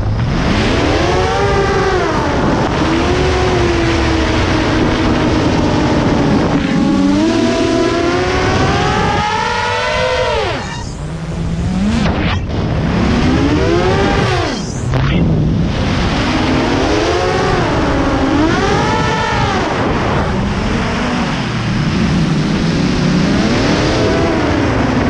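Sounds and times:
drone propellers whining: 0.0 - 25.0.

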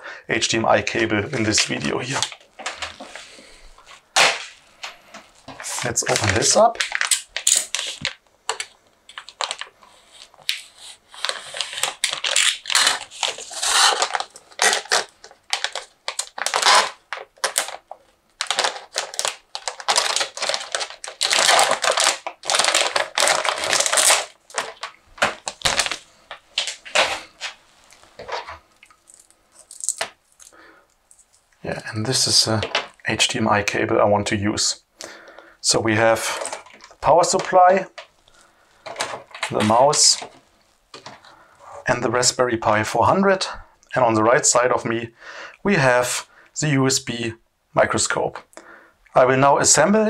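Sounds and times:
plastic bag crinkling: 1.3 - 31.5, 36.0 - 41.3
knife slitting plastic bag: 18.4 - 26.0.

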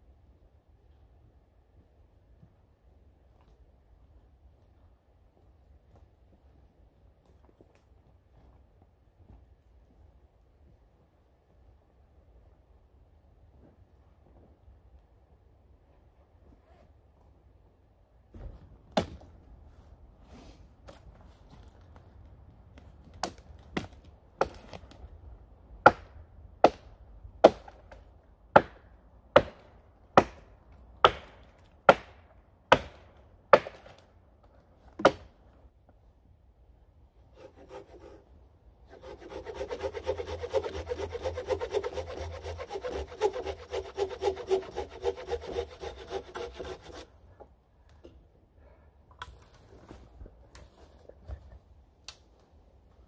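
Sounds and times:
axe chopping wood: 18.9 - 19.3, 30.2 - 33.9, 35.0 - 35.3
hand saw cutting branch: 37.3 - 38.2, 38.9 - 47.1.

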